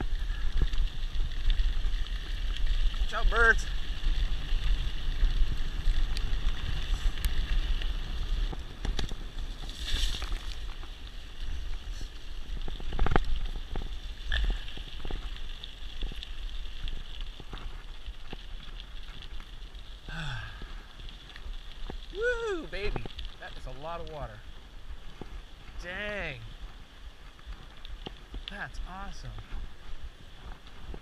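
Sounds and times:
bike tyres rumbling on gravel: 0.0 - 31.0
bike knocking and rattling: 3.7 - 19.4.

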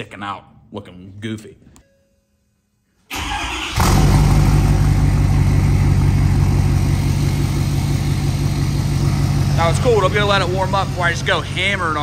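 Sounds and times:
diesel engine starting and idling: 3.1 - 12.0.

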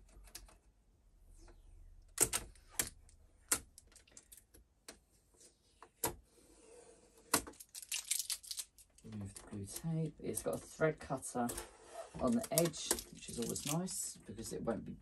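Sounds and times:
plastic parts clicking: 7.3 - 10.7, 11.4 - 13.8
tape rustling: 7.3 - 10.8, 11.4 - 13.9.

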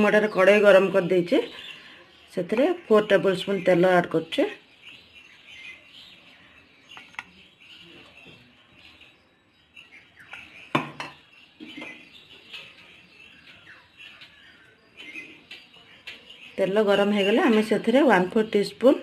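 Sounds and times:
faint birds chirping: 0.0 - 19.0
utensils clinking against pan: 9.8 - 13.6.

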